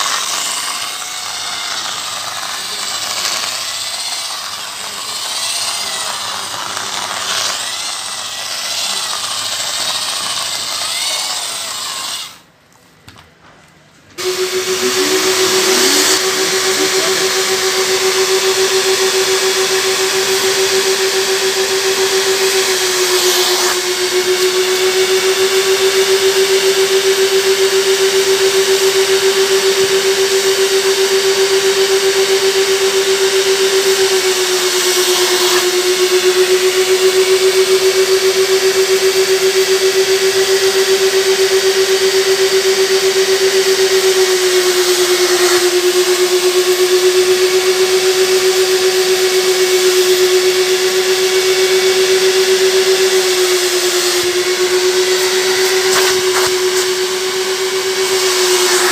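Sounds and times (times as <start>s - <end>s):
extraction vacuum motor humming: 0.0s - 12.5s, 14.2s - 58.9s
power drill scrubbing upholstery: 0.0s - 12.5s, 14.2s - 58.9s.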